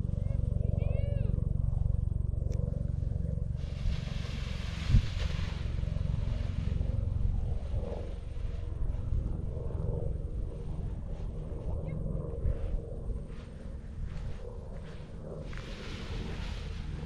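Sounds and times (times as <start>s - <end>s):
wind buffeting microphone: 0.0s - 17.0s
hissing wind gust: 2.8s - 11.7s, 12.4s - 17.0s.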